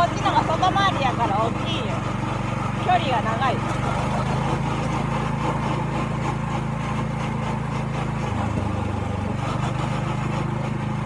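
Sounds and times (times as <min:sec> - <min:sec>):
go-kart engine running: 0:00.0 - 0:11.0.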